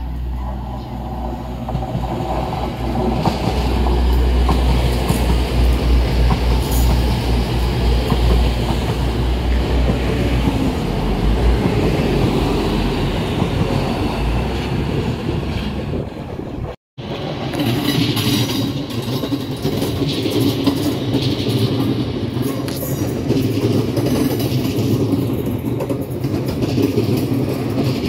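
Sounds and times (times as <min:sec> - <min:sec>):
deep diesel train rumble: 0:00.0 - 0:17.9
train wheels on rails: 0:00.0 - 0:28.0.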